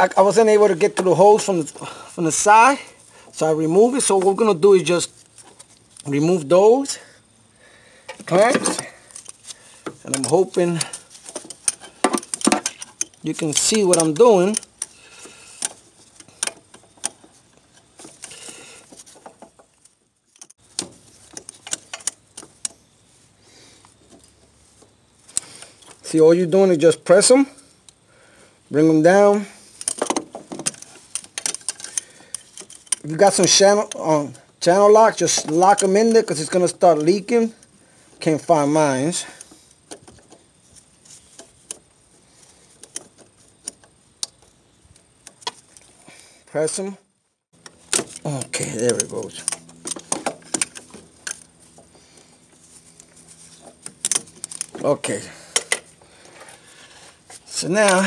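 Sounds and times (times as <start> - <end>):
pliers clicking on hose clamps: 8.1 - 17.2, 29.8 - 33.1, 53.8 - 54.8
pliers clicking on metal clamps: 11.6 - 15.0.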